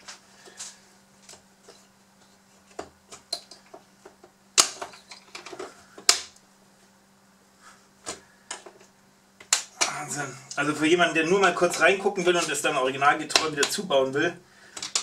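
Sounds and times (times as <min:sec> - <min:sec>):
plastic toy parts clicking: 0:14.8 - 0:15.0.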